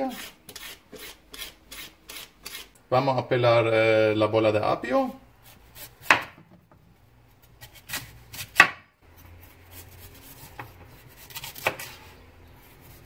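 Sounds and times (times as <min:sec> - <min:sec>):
faint knife scraping: 0:00.0 - 0:02.8, 0:07.4 - 0:13.0.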